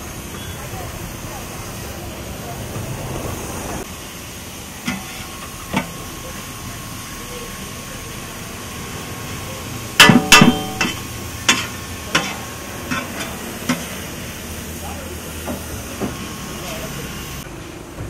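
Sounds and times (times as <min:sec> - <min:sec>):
steel cookware clanking: 0:04.8 - 0:06.1, 0:10.0 - 0:14.2.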